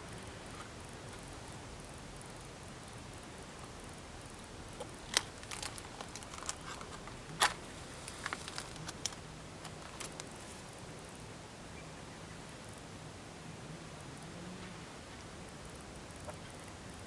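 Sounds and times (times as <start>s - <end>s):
faint steady hiss: 0.0s - 17.0s
embers crackling and popping: 4.2s - 10.7s.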